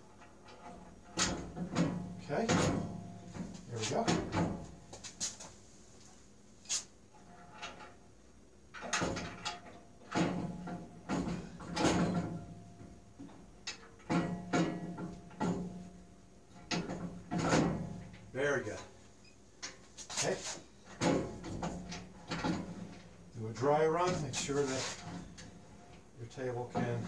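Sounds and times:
metal clunks and knocks: 0:00.2 - 0:04.9, 0:08.7 - 0:18.3, 0:20.9 - 0:23.2, 0:24.0 - 0:27.0.

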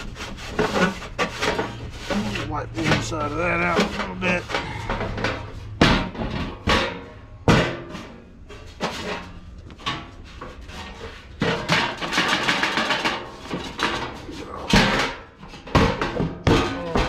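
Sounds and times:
metal clattering and scraping: 0:00.0 - 0:17.0
sheet metal knocks and clanks: 0:00.0 - 0:17.0.

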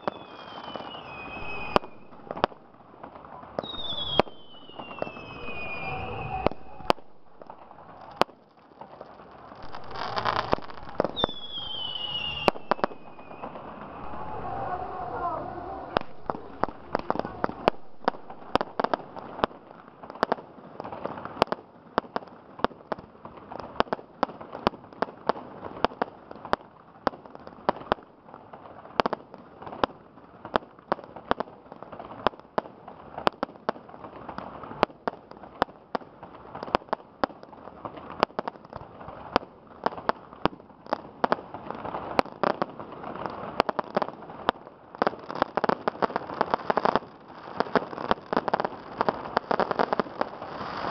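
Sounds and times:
fireworks crackling: 0:00.0 - 0:50.9
firework shells bursting: 0:03.6 - 0:14.1.

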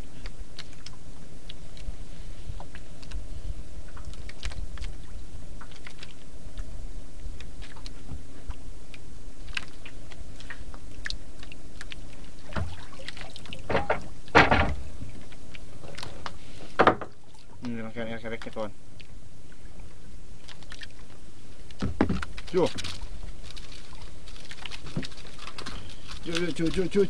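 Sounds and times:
low wind rumble: 0:00.0 - 0:20.4
water lapping against boat hull: 0:00.0 - 0:27.0
water sloshing: 0:00.0 - 0:27.0.

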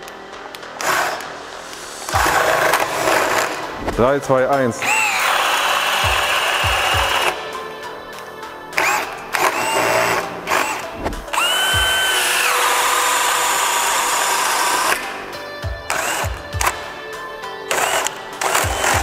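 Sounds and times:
drill motor whining: 0:04.8 - 0:07.6, 0:08.8 - 0:15.3, 0:15.9 - 0:16.9, 0:17.7 - 0:19.0.

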